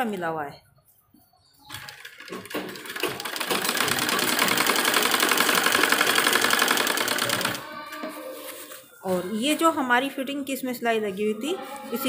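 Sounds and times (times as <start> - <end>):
sewing machine running: 1.7 - 7.6.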